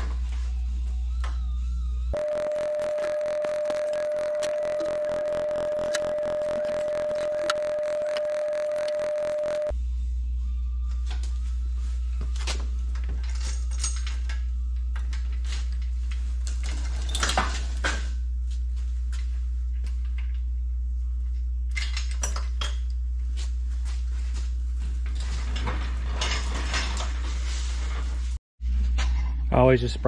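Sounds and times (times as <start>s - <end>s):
steady low hum: 2.2s - 10.8s
metal tools clinking and clattering: 12.9s - 17.7s.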